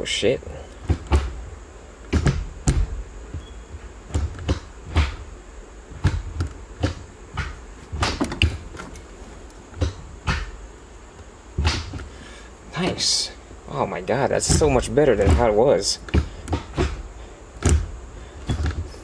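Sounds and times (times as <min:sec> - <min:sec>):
gear shifter clunking: 0:14.3 - 0:17.0.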